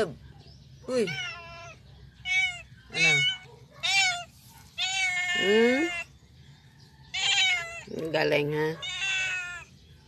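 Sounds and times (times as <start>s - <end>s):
cat meowing: 1.0s - 6.1s, 7.1s - 8.0s, 8.8s - 9.7s.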